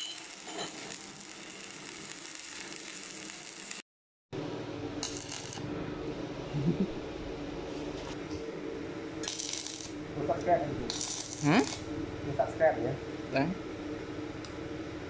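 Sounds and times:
welding arc crackling and hissing: 0:00.0 - 0:03.8, 0:05.0 - 0:05.7, 0:09.2 - 0:11.9
steady low hum: 0:04.4 - 0:15.0.

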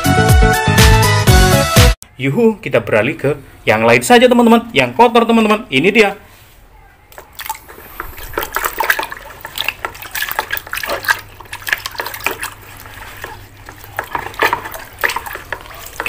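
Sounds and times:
water splashing in plastic bucket: 0:07.1 - 0:16.0.

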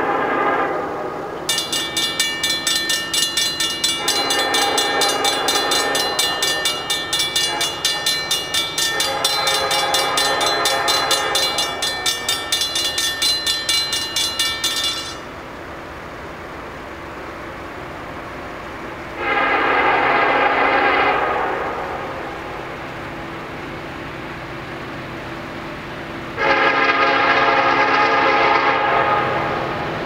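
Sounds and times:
train air horn blasts: 0:00.0 - 0:01.2, 0:03.9 - 0:08.2, 0:08.8 - 0:11.9, 0:19.2 - 0:22.1, 0:26.4 - 0:29.6
crossing bell ringing rapidly: 0:01.5 - 0:15.5.

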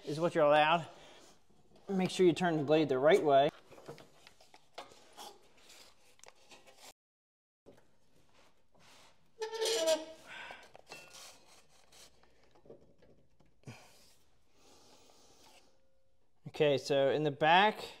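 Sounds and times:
squealing metal scrape: 0:09.4 - 0:10.3.

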